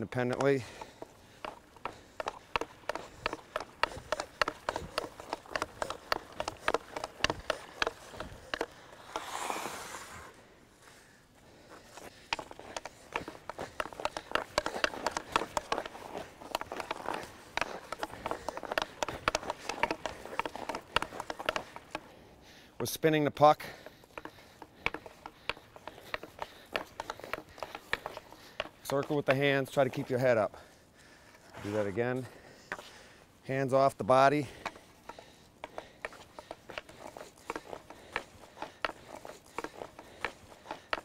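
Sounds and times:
skate blades scraping ice: 0.0s - 10.6s, 12.0s - 22.0s, 24.2s - 30.1s, 34.6s - 41.0s
hockey stick tapping puck: 0.2s - 9.4s, 12.3s - 22.1s, 23.8s - 30.1s, 34.6s - 41.0s.

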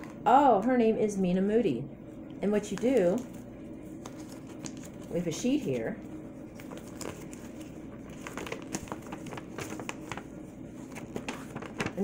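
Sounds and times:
paper rustling and crinkling: 2.7s - 12.0s.

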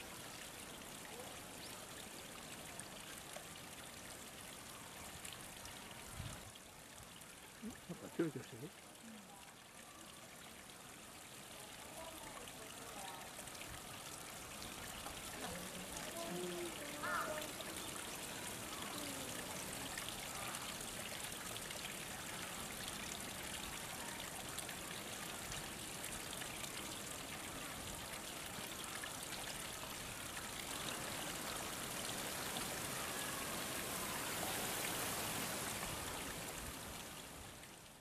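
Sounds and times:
running water rushing: 0.0s - 38.0s.

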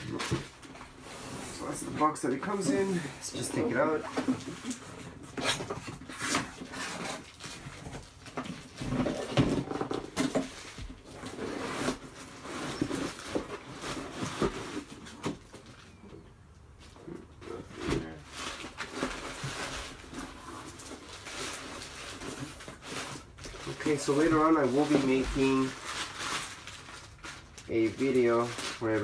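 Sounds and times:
cardboard box scraping and rustling: 0.0s - 15.3s.

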